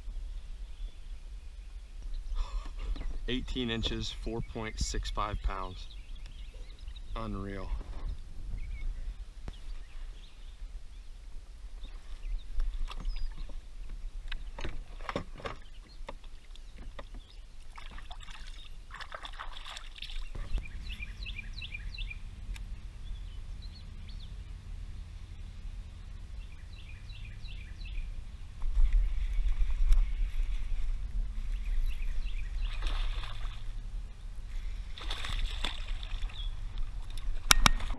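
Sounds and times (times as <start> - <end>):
water splashing: 14.8 - 20.7, 32.5 - 33.8, 34.6 - 37.9.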